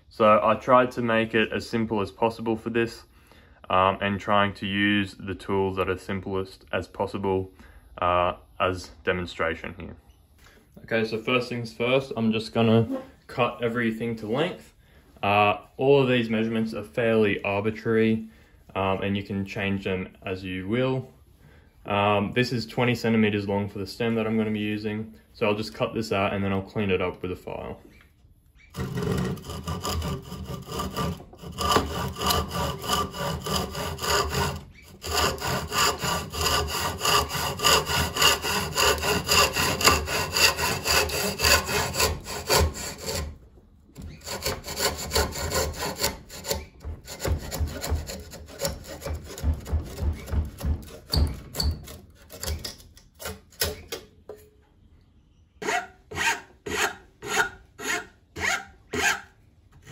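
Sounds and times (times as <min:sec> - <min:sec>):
hand saw cutting wood: 0:28.7 - 0:43.4, 0:44.0 - 0:53.7, 0:55.6 - 0:59.9
metal file strokes on wood: 0:28.7 - 0:43.4, 0:44.0 - 0:50.2.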